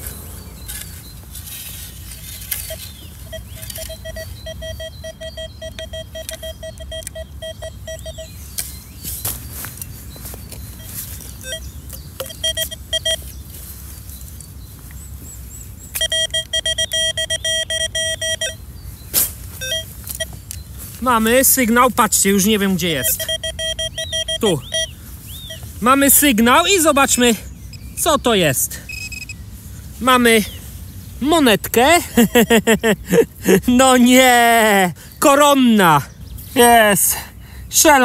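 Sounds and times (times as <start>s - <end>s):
metal detector short beeps: 2.5s - 8.4s, 10.8s - 13.3s, 15.9s - 18.6s, 19.6s - 20.4s, 22.8s - 26.2s, 27.7s - 28.1s, 28.9s - 29.4s.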